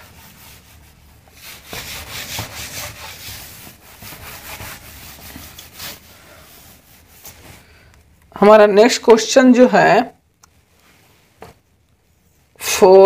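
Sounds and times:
palm rubbing a whiteboard: 0.0s - 7.6s.

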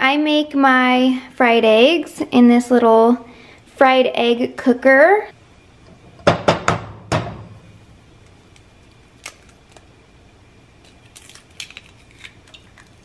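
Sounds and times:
eggshell cracking: 8.5s - 9.9s, 10.8s - 13.0s.

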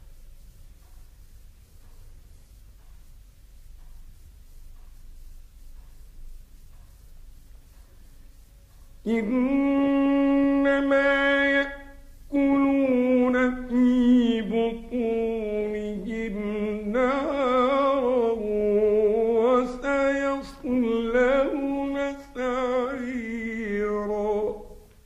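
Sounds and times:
man chanting recitation: 9.0s - 25.0s.

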